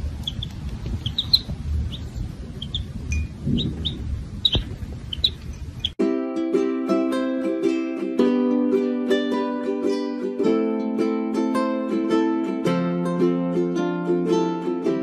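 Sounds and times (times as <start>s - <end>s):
chicks peeping: 0.0s - 6.0s
low rumble: 0.0s - 6.0s
ukulele music: 5.9s - 15.0s.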